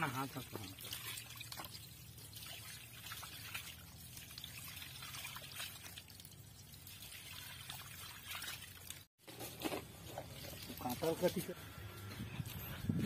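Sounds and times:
small water splashes: 0.0 - 9.1, 10.2 - 11.3
water pouring from a hose: 0.0 - 11.6.

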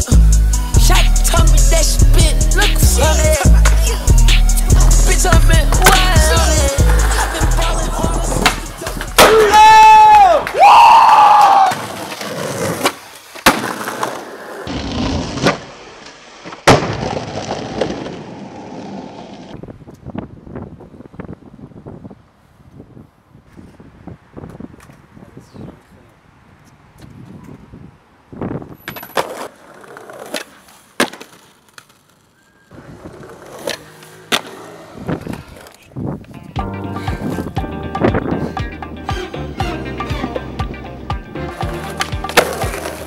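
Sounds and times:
skateboard wheels rolling on concrete: 0.0 - 43.0
skateboard clacks: 5.3 - 7.4, 8.3 - 10.6, 28.8 - 36.6, 41.6 - 43.0.

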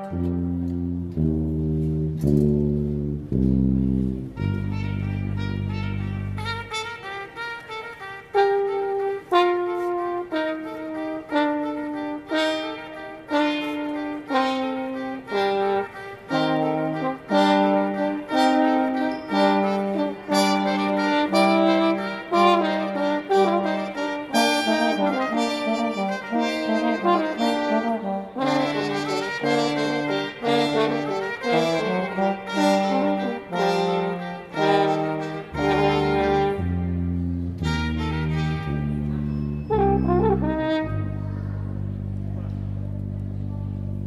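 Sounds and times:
low bass line: 0.0 - 6.9, 31.8 - 44.0
instrumental music with held notes: 0.0 - 44.0.

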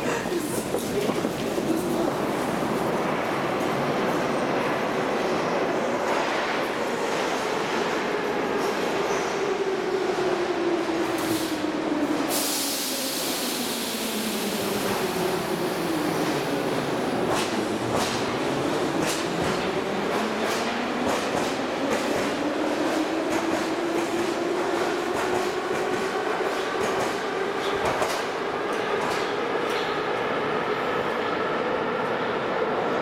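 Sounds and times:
train door air hiss: 11.2 - 11.6, 12.2 - 15.0.

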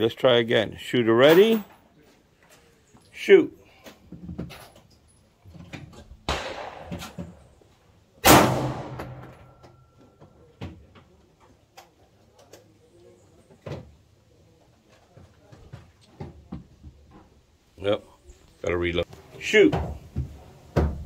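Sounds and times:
pistol shots with echo: 6.3 - 7.5, 8.2 - 9.6.

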